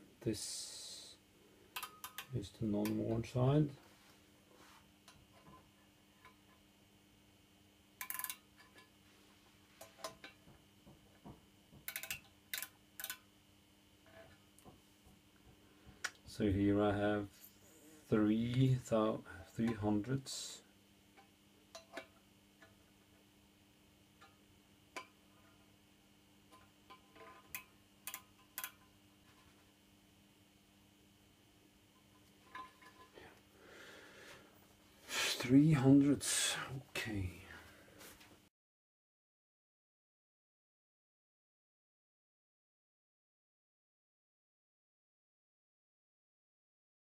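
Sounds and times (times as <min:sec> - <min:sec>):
faint steady hum: 0:00.0 - 0:38.5
micrometer clicks: 0:01.8 - 0:03.0, 0:11.8 - 0:13.3
ratchet clicks: 0:08.0 - 0:08.4, 0:11.9 - 0:13.2.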